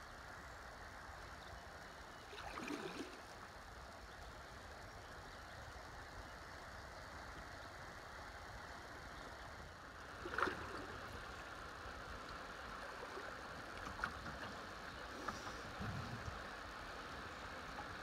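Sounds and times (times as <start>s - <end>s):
river water lapping on kayak: 1.8s - 6.2s, 6.8s - 18.0s
water splash: 10.2s - 11.0s.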